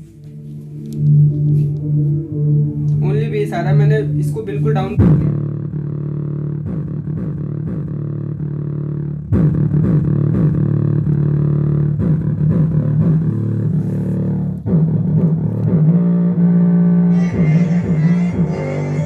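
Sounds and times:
song through small speaker: 0:00.0 - 0:19.0.

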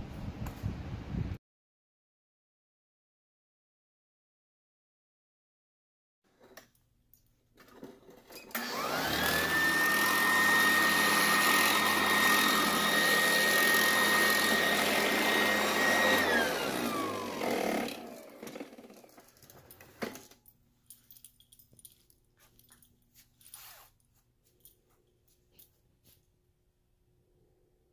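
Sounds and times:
vacuum cleaner motor whine: 0:08.3 - 0:19.3.

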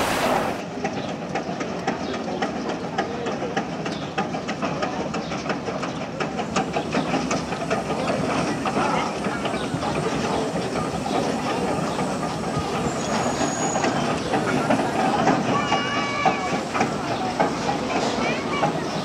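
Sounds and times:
steam hissing: 0:00.0 - 0:00.6, 0:05.0 - 0:19.0
train wheels clicking over rail joints: 0:00.0 - 0:19.0.

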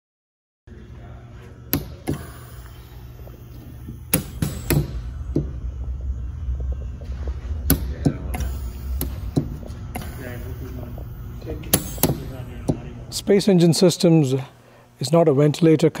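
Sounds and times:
low steady hum: 0:00.7 - 0:16.0
solenoid valves clicking: 0:01.7 - 0:05.6, 0:07.6 - 0:13.0.

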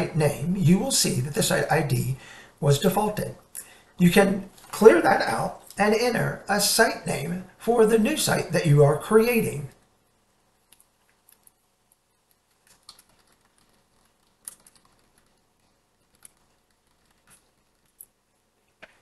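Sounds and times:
keyboard typing: 0:10.7 - 0:18.1.

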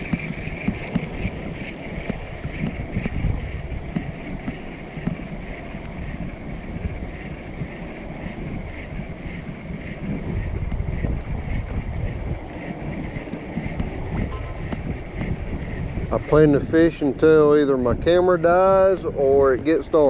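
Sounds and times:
steady high-pitched whine: 0:00.0 - 0:20.0
wind buffeting microphone: 0:00.0 - 0:20.0.

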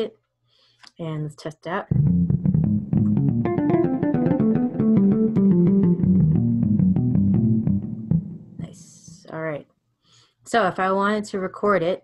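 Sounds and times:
plucked electric bass notes: 0:01.9 - 0:09.2.

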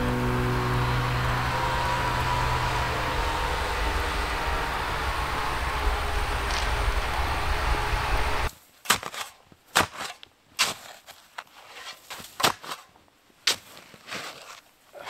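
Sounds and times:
vehicle engine rumble: 0:00.0 - 0:08.5
snow shovel crunching icy snow: 0:06.4 - 0:07.6, 0:08.3 - 0:15.0.

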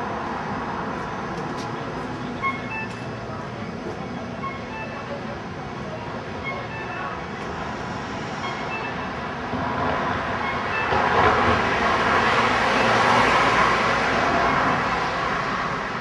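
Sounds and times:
passing vehicle: 0:07.2 - 0:16.0.

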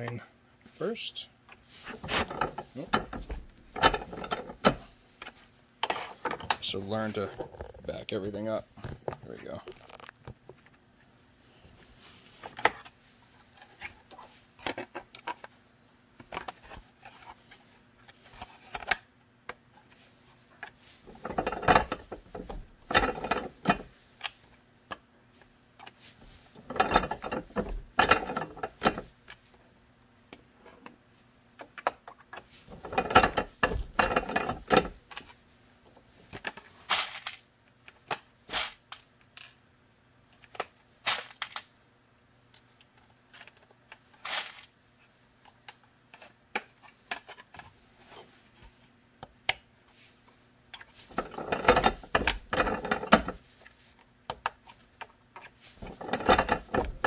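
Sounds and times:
press clicks and metal clatter: 0:55.8 - 0:57.0.

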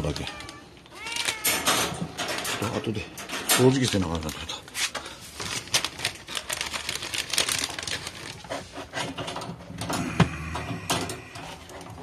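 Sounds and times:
hard objects clicking and rattling: 0:00.0 - 0:12.0.

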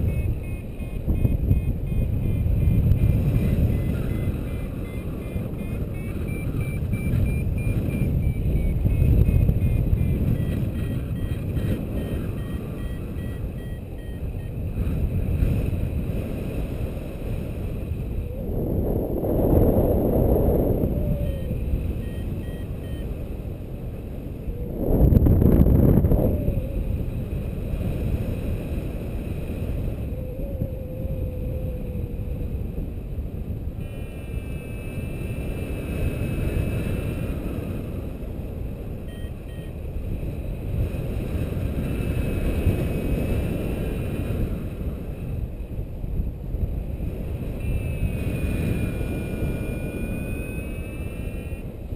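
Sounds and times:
faint short beeps: 0:00.0 - 0:15.0, 0:21.0 - 0:23.4, 0:33.8 - 0:35.6, 0:39.0 - 0:39.9, 0:47.5 - 0:51.8
wind rushing over microphone: 0:00.0 - 0:51.9.

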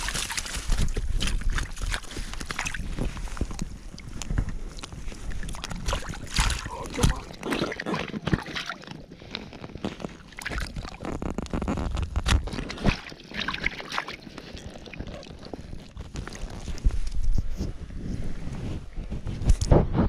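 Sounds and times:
small water splashes: 0:00.0 - 0:11.4, 0:12.2 - 0:16.9
fish net handling clicks and knocks: 0:00.0 - 0:14.1
wind buffeting microphone: 0:16.0 - 0:20.0.

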